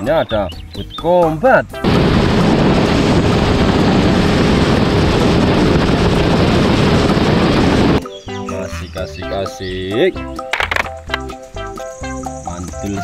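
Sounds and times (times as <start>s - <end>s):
boat engine roaring: 1.8s - 8.0s.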